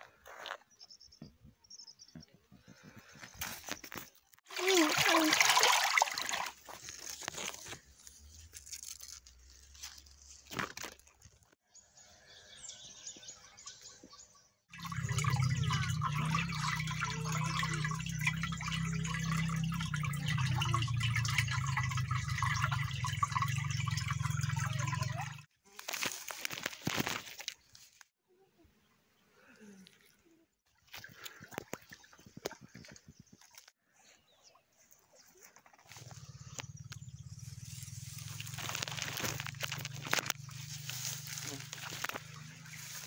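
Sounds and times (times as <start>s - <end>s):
water rushing down a canal: 4.4s - 7.8s, 14.7s - 25.5s, 37.6s - 43.0s.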